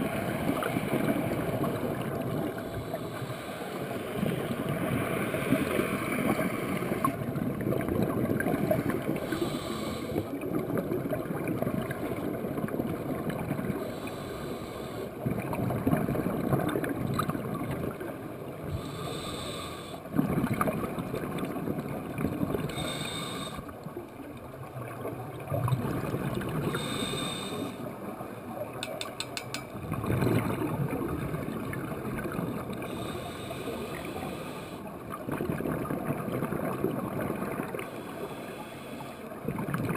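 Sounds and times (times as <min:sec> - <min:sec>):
exhaled bubbles gurgling underwater: 0:00.0 - 0:28.8, 0:29.7 - 0:39.9
regulator inhalation hiss: 0:09.3 - 0:10.2, 0:18.8 - 0:20.0, 0:22.7 - 0:23.6, 0:26.8 - 0:27.8.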